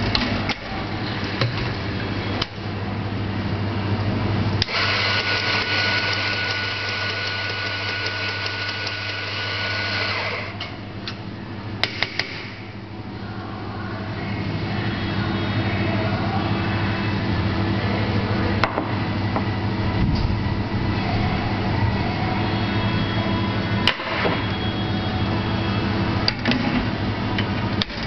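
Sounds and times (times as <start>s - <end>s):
coffee grinder whirring: 4.6s - 10.6s
steady low hum: 10.3s - 28.0s.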